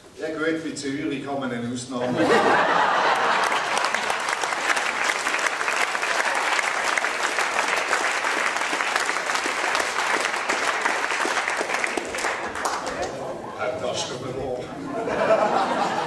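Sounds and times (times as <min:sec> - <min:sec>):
audience applauding: 0:02.3 - 0:13.4.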